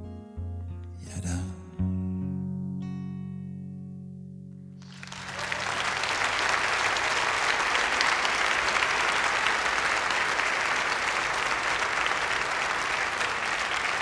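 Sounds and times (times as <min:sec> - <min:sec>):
audience applauding: 0:04.8 - 0:14.0.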